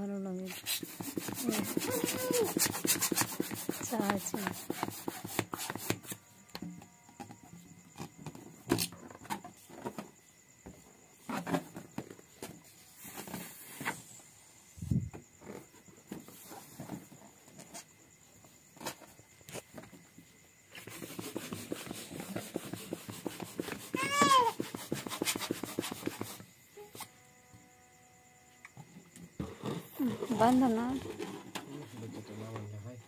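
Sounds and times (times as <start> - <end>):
balloon rubber rubbing: 0.6 - 6.0, 20.9 - 26.3
balloons knocking and rustling: 20.9 - 26.2.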